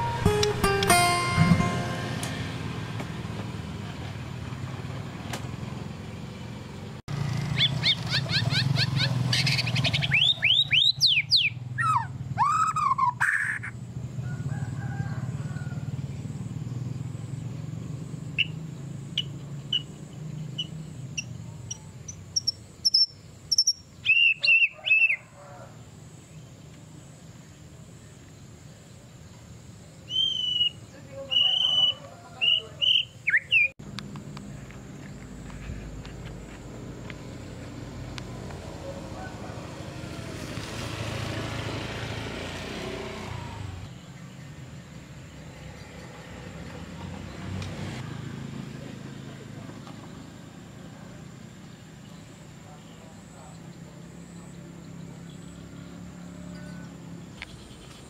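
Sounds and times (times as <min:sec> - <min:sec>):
songbird singing: 0:00.0 - 0:04.6, 0:05.7 - 0:58.0
bird chirps: 0:07.5 - 0:13.8, 0:18.3 - 0:25.3, 0:30.0 - 0:33.8.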